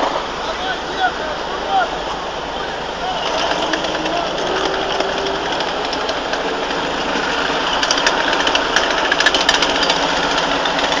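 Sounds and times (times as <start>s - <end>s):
idling vehicle engines: 0.0s - 11.0s
rapid clicking rattle: 3.2s - 11.0s.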